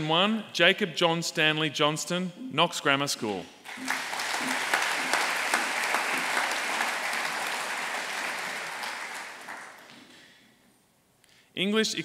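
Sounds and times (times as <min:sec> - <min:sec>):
audience applauding: 0:03.7 - 0:10.2.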